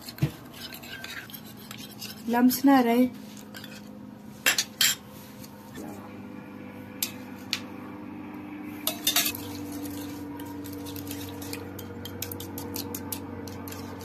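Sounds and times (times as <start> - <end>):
low hum: 5.5 - 14.0.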